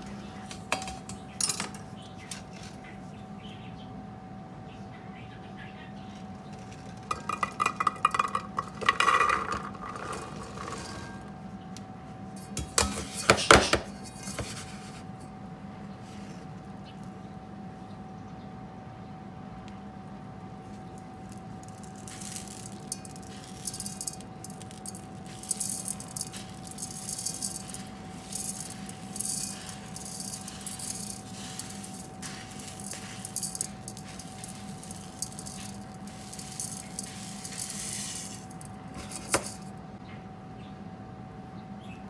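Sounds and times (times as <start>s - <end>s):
sugar pouring rattling hiss: 6.4s - 11.2s, 20.8s - 39.8s.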